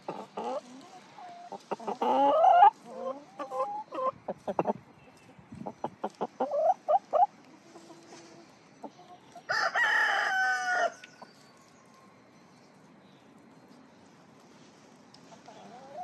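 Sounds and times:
chicken clucking: 0.0s - 12.6s, 15.1s - 16.0s
rooster crowing: 9.5s - 11.1s.

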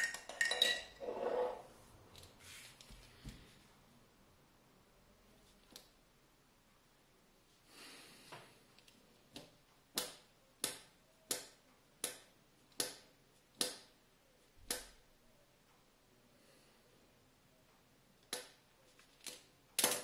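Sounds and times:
soft rustle: 1.1s - 3.8s.

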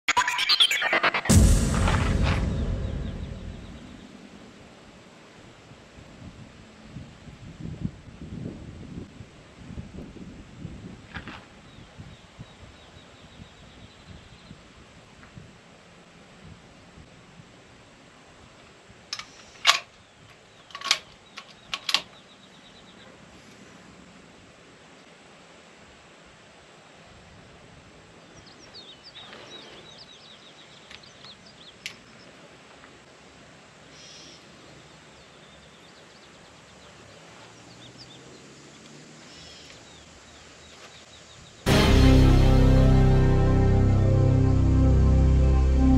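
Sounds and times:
buzzy bird trills: 0.1s - 1.3s
rifle bolt metallic clacks: 19.2s - 19.9s, 20.7s - 22.1s
birds chirping: 33.9s - 41.6s.

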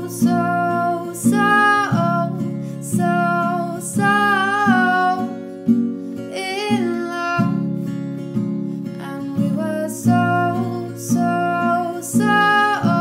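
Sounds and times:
person singing: 0.0s - 5.4s, 8.9s - 13.0s
strummed acoustic guitar: 0.0s - 13.0s.

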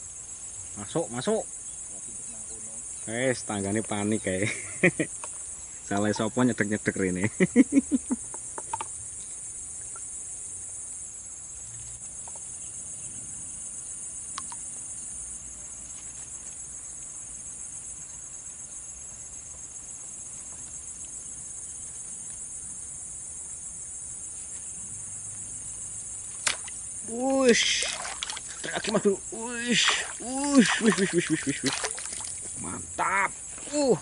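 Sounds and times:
insects buzzing: 0.0s - 34.0s
faint click: 14.3s - 14.6s.

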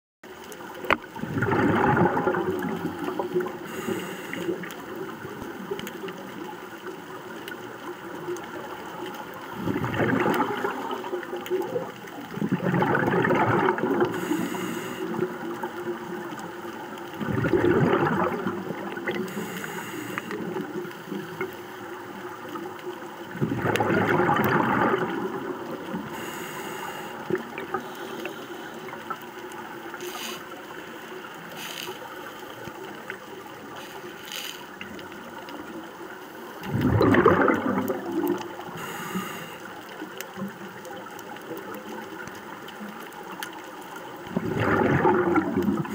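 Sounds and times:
underwater bubbles gurgling: 0.2s - 45.9s.

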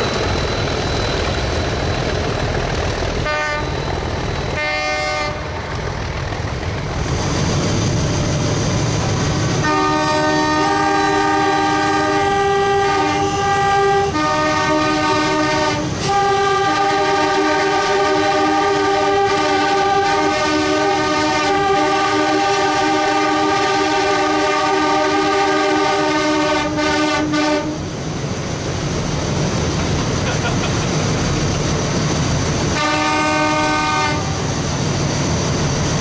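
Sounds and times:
locomotive running and track noise: 0.0s - 36.0s
locomotive air horn chord: 3.2s - 3.8s, 4.5s - 5.6s, 9.6s - 27.9s, 32.7s - 34.5s.

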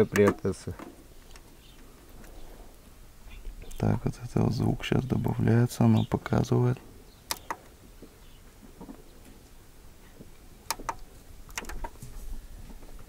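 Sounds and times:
faint clicks of volume control: 0.1s - 3.9s, 7.3s - 7.8s, 10.0s - 13.0s.

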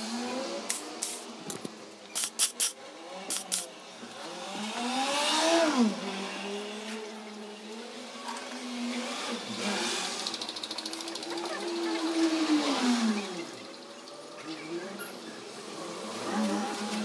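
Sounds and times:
turbo hiss: 2.1s - 3.7s
turbocharged car engine revving: 2.9s - 17.0s.

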